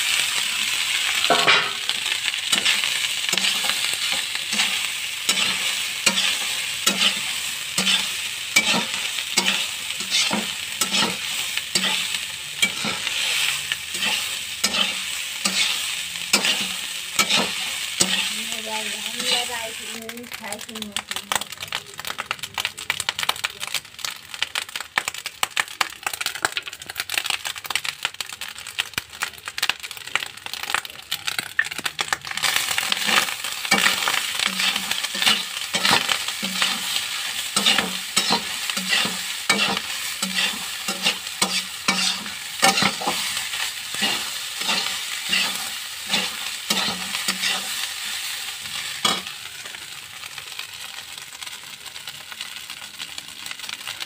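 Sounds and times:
rice sizzling in a pan: 0:00.0 - 0:54.0
metal spatula scraping a pan: 0:01.2 - 0:19.5, 0:32.4 - 0:49.3.

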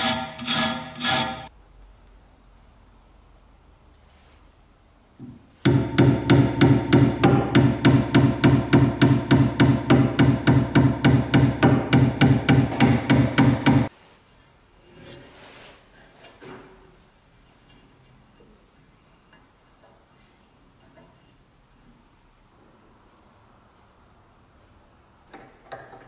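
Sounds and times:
hammer blows ringing on metal: 0:05.7 - 0:13.9.

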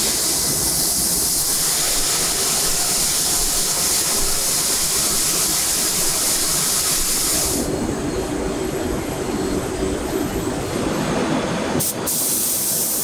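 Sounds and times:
factory machinery hiss: 0:00.0 - 0:08.0, 0:11.1 - 0:13.0.

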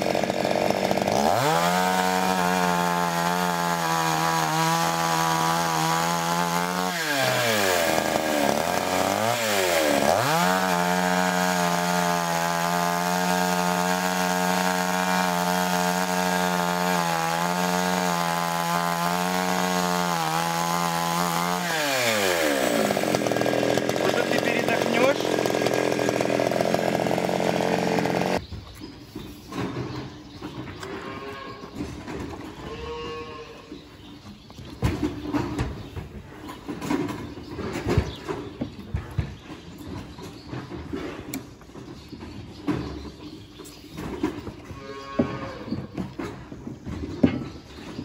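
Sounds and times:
chainsaw cutting log: 0:00.0 - 0:28.5.

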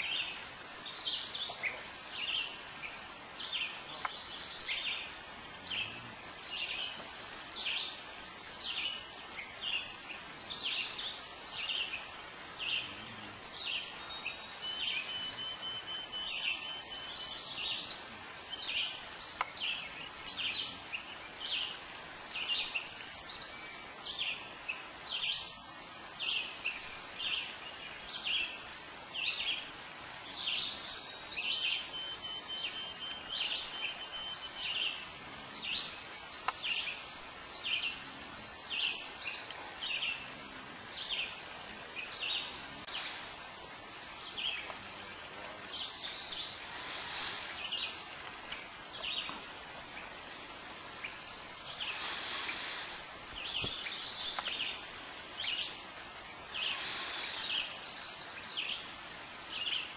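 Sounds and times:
songbird trills: 0:00.0 - 0:59.9
thin steady bird whistle: 0:12.9 - 0:19.9, 0:29.3 - 0:35.1.

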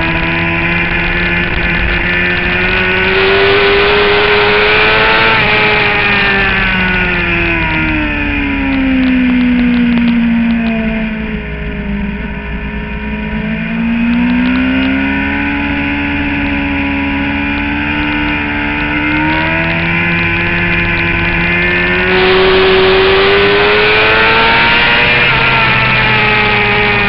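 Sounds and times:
motorcycle engine accelerating hard: 0:00.0 - 0:27.0
rushing wind noise: 0:00.0 - 0:27.0.

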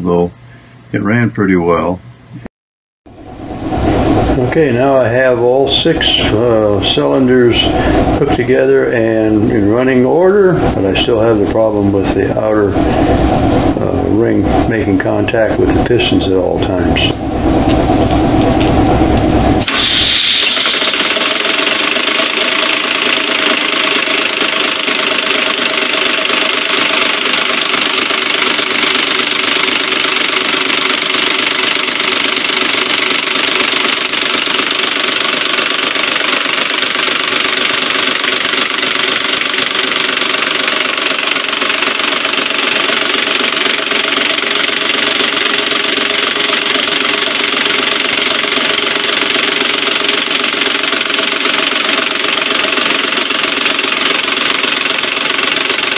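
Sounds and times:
steady mechanical rattle: 0:03.7 - 0:55.9
hiss of exhausting air: 0:19.7 - 0:21.0.

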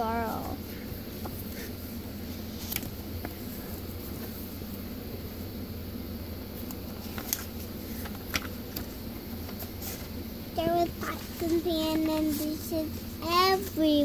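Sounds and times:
low room hum: 0:00.0 - 0:14.0
paper pages rustling: 0:07.0 - 0:08.9.

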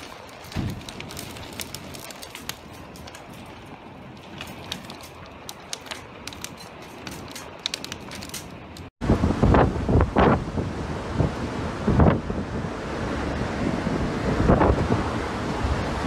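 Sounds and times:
raindrops ticking close by: 0:00.0 - 0:08.9.

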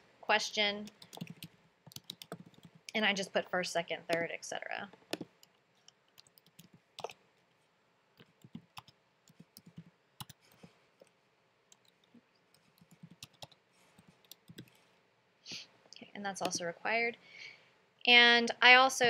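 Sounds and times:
keyboard typing: 0:00.9 - 0:03.0, 0:04.9 - 0:07.2, 0:08.2 - 0:11.1, 0:11.7 - 0:14.9.

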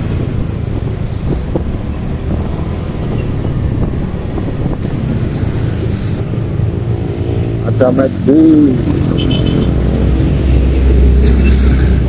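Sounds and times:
wind buffeting microphone: 0:00.0 - 0:06.4
traffic engine rumble: 0:00.0 - 0:12.0.

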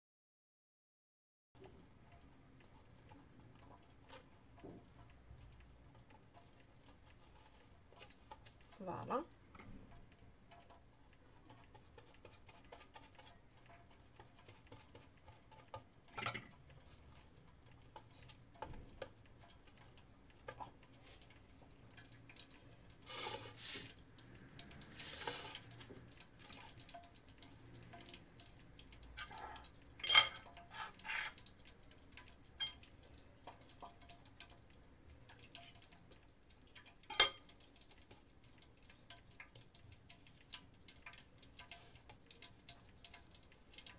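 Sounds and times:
kitchenware clicks and knocks: 0:30.0 - 0:30.6.

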